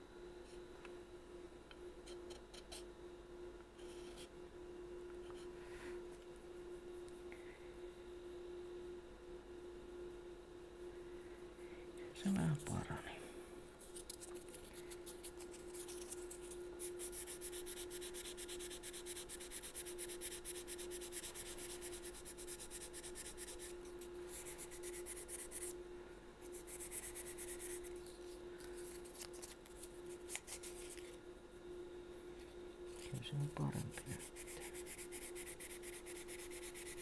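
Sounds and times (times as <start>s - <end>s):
hand-sanding wood: 16.8s - 23.8s, 34.1s - 37.0s.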